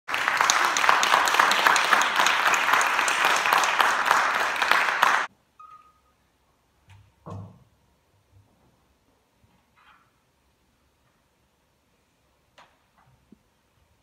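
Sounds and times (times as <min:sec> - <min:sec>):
audience applauding: 0:00.1 - 0:05.3.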